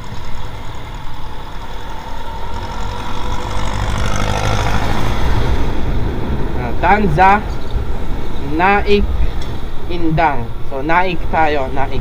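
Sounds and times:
scooter engine accelerating: 0.0s - 8.4s
wind rumbling on microphone: 0.0s - 12.0s.

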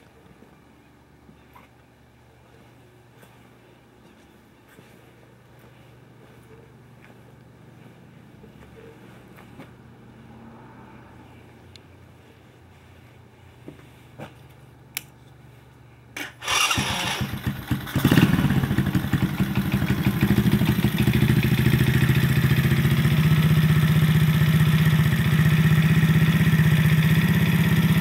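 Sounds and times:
small two-stroke engine revving: 16.3s - 28.0s.

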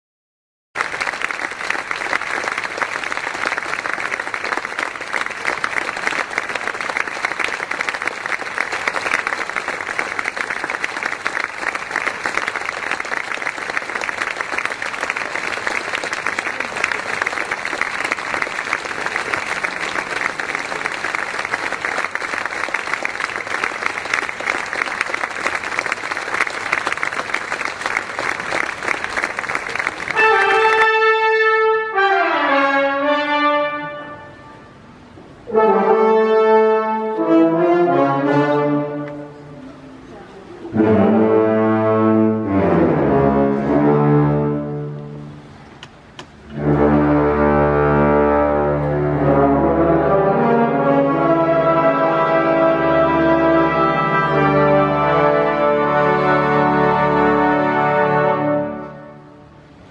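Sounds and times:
audience applauding: 0.8s - 31.4s, 50.6s - 59.0s.

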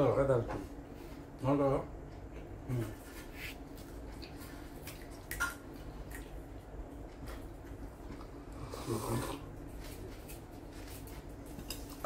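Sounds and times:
chewing sounds: 3.6s - 12.0s
low voice hum: 8.4s - 9.5s.

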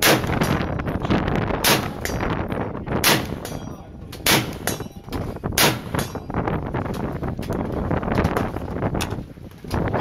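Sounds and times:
suppressed rifle shots: 4.2s - 4.8s.

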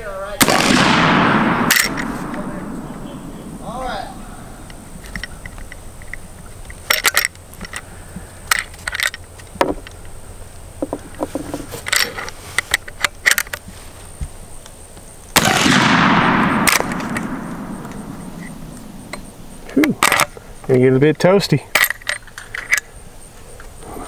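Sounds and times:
rifle shot with echo: 0.4s - 5.1s, 15.4s - 19.5s.

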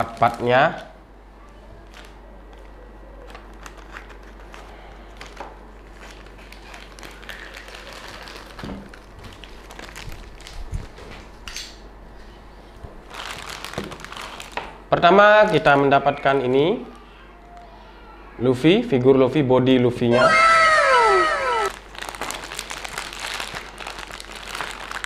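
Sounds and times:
plastic bag crinkling: 1.8s - 11.0s, 13.1s - 14.7s, 21.6s - 25.0s.

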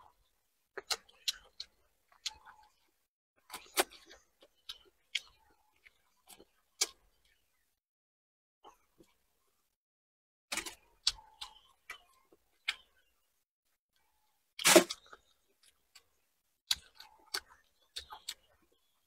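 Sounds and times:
chewing crispy fried food: 0.0s - 7.7s, 8.6s - 9.7s, 10.5s - 13.2s, 14.0s - 19.0s.

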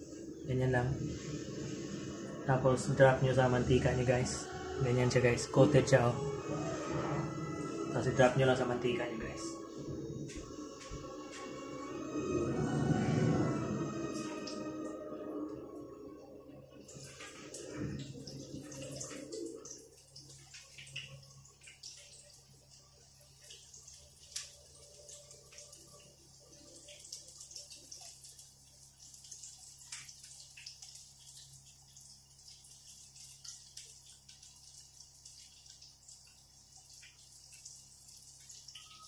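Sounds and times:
oil popping and crackling: 16.9s - 32.3s
fish frying in oil: 16.9s - 39.0s.

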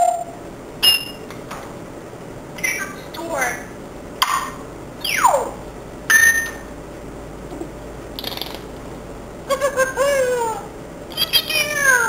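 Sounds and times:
parrot calling: 0.0s - 1.2s, 5.0s - 6.6s, 9.5s - 12.0s.

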